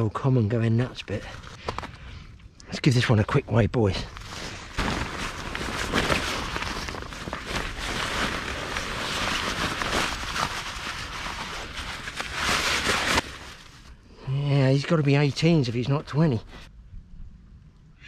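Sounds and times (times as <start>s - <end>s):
nylon sling and net rustling: 4.1s - 13.9s.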